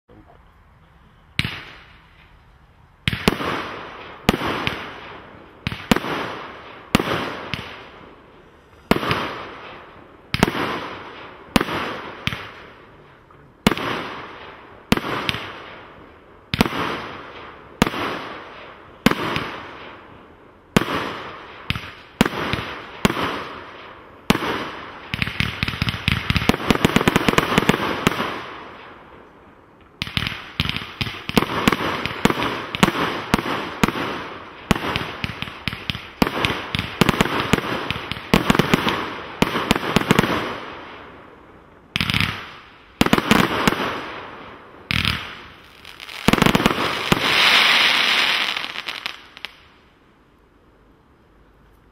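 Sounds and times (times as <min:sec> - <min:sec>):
firework bangs echoing: 0:03.0 - 0:08.0, 0:08.8 - 0:12.8, 0:20.7 - 0:29.0, 0:30.0 - 0:41.1, 0:42.0 - 0:49.6
firework rapid crackling: 0:24.3 - 0:28.5, 0:30.0 - 0:40.6, 0:44.9 - 0:49.6.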